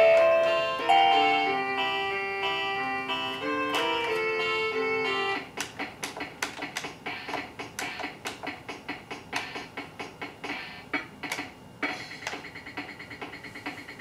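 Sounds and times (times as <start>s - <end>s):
electronic toy notes: 0.0s - 5.6s
toy keyboard key clicks: 5.6s - 8.5s.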